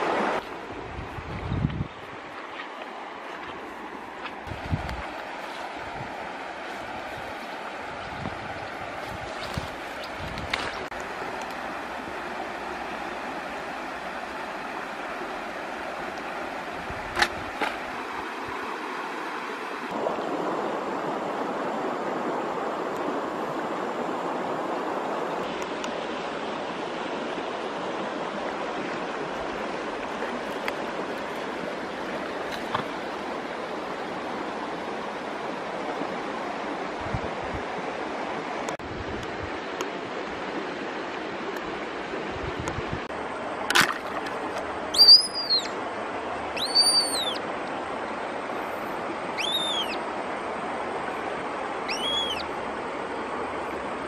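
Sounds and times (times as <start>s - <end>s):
flowing river water: 0.0s - 54.0s
whistling bird calls: 44.9s - 45.8s, 46.6s - 47.4s, 49.3s - 50.0s, 51.8s - 52.5s.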